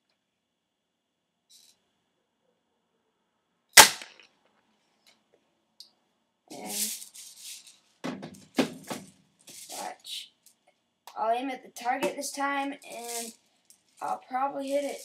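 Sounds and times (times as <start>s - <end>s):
airsoft shotgun shot: 3.8s - 4.2s.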